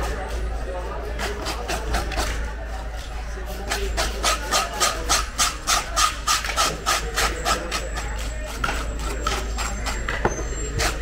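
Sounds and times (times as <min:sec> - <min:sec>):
blade scraping fish scales: 0:03.5 - 0:11.0.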